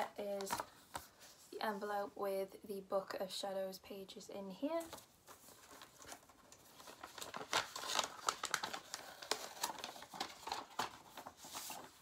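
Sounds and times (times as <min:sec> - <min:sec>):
paper rustling and crinkling: 0:00.2 - 0:01.5, 0:04.8 - 0:12.0.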